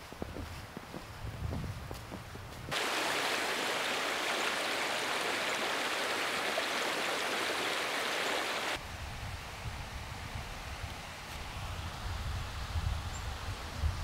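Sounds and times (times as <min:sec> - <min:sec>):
creek water rushing: 0:02.7 - 0:08.8.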